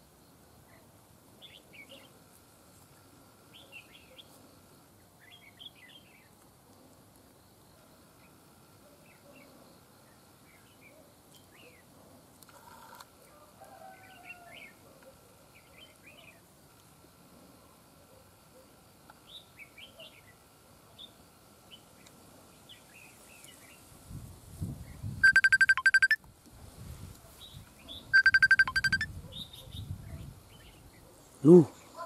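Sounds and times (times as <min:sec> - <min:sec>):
birds chirping: 0:27.9 - 0:29.7.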